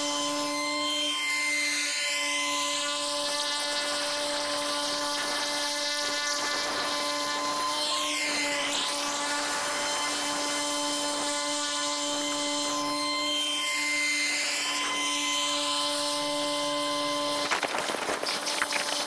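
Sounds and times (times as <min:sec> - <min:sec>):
helicopter rotor noise: 0:03.6 - 0:10.6, 0:17.4 - 0:19.0.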